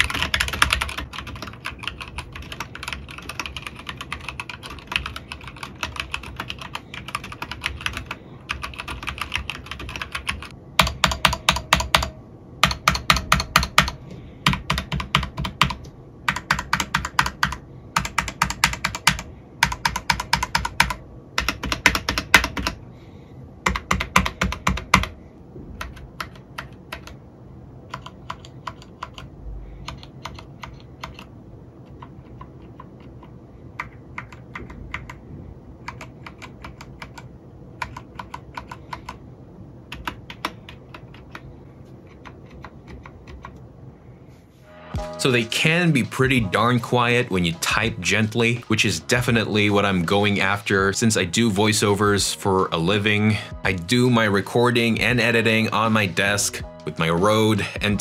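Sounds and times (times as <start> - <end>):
mechanical keyboard typing: 0.0 - 22.8, 23.6 - 25.2, 25.8 - 27.2, 27.9 - 35.2, 35.8 - 39.2, 39.9 - 43.6.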